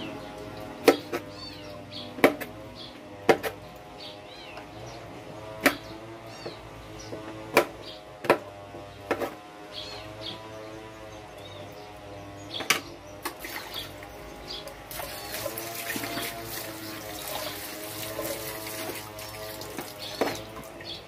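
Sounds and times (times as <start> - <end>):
knife chopping on plastic board: 3.3 - 3.6.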